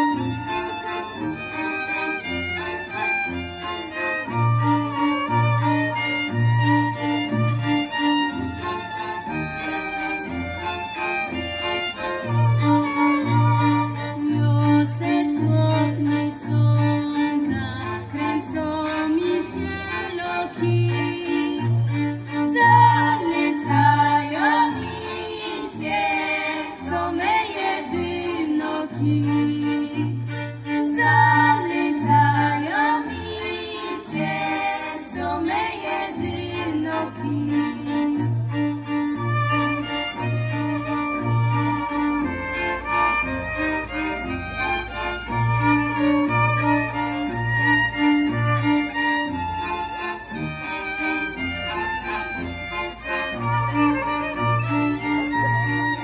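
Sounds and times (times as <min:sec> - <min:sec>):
cello bass notes: 0:00.0 - 0:56.0
violins playing lively folk tune: 0:00.0 - 0:56.0
women singing: 0:14.0 - 0:38.5.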